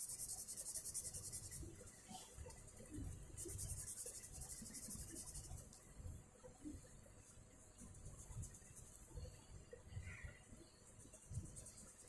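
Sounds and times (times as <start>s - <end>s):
pen scribbling on paper: 0.0s - 1.6s.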